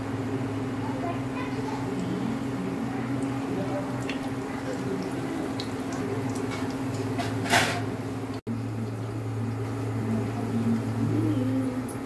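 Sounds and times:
dough deep-frying in oil: 0.0s - 12.0s
low hum: 8.0s - 12.0s.

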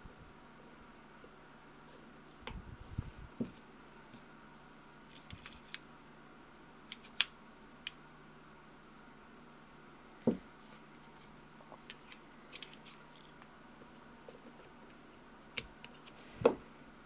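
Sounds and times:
soft handling knocks: 10.2s - 10.5s.

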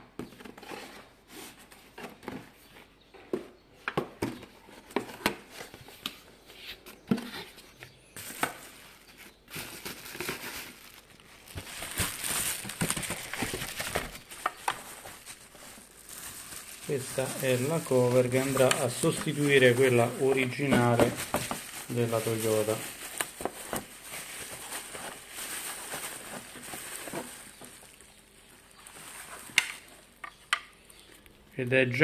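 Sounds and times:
cardboard packaging handled: 4.2s - 30.3s
bubble wrap crinkling: 8.2s - 31.5s.

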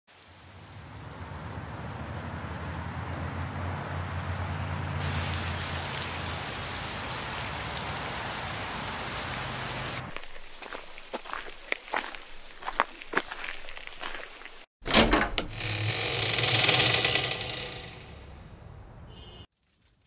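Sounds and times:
rain on pavement and puddles: 0.1s - 14.7s.

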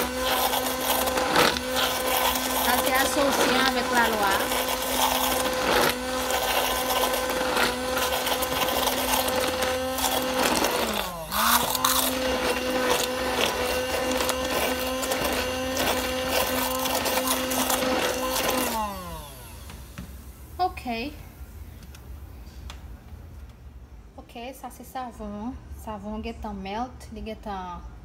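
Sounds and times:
immersion blender running: 0.0s - 20.0s.

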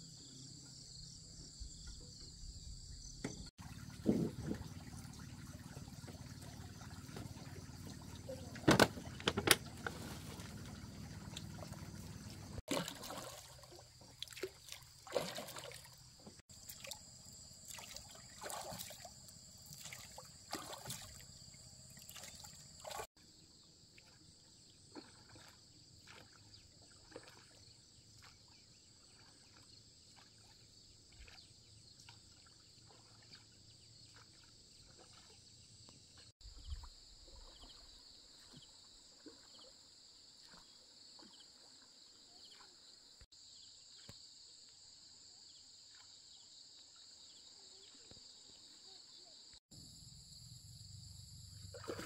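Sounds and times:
oars splashing in water: 3.3s - 23.1s, 23.9s - 35.9s, 36.5s - 43.0s, 51.7s - 52.0s
boat knocking: 7.0s - 12.6s.

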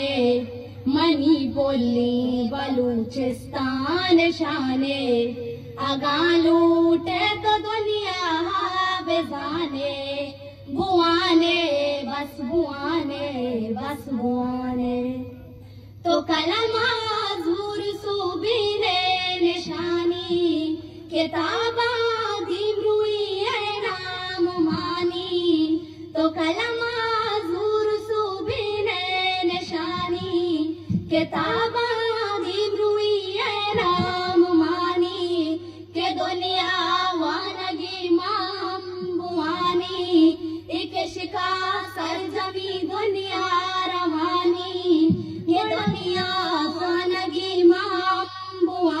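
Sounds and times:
girl singing unaccompanied: 0.0s - 15.3s, 16.0s - 49.0s.

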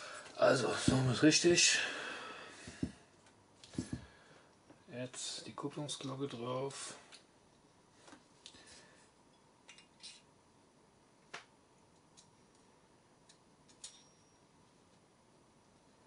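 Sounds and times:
small metallic clicks: 11.9s - 14.3s.

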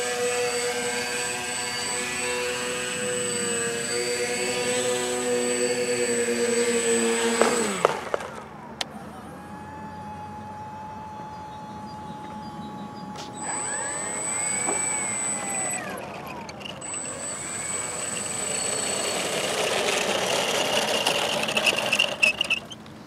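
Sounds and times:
model aircraft propellers whining: 0.0s - 23.0s.

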